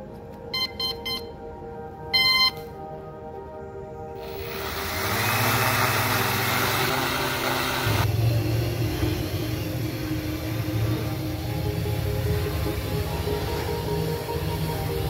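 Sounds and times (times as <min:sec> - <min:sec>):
quadcopter motors whirring: 0:04.2 - 0:15.0.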